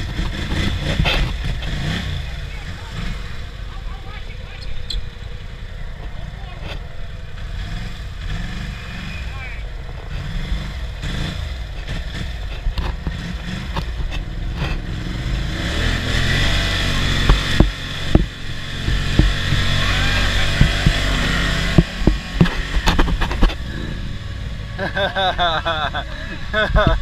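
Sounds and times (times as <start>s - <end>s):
atv engine revving in mud: 0.0s - 27.0s
sharp thumps: 15.9s - 24.2s.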